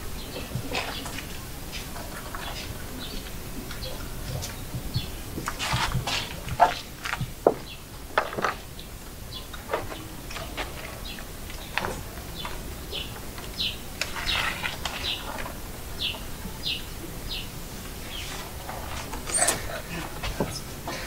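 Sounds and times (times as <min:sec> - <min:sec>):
small bird chirping: 0:08.8 - 0:18.4.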